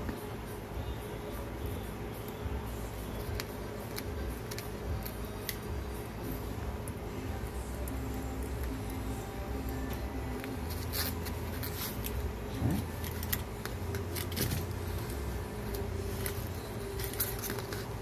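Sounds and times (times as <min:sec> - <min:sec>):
steady low hum: 0:00.0 - 0:18.0
wires and plastic housing clicking: 0:12.8 - 0:18.0.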